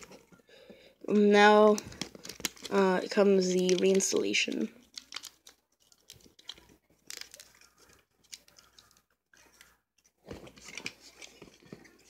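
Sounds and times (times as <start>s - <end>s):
clicks of plastic casing handled: 1.7s - 2.7s.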